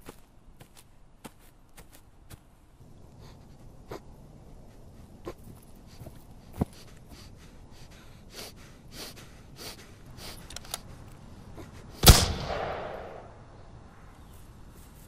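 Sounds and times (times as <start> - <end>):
gunshot: 12.0 - 13.4
faint rustles: 14.0 - 15.0.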